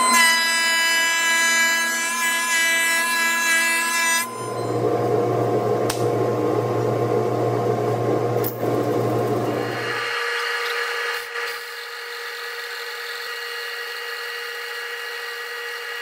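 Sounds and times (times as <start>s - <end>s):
thickness planer whine: 0.0s - 16.0s.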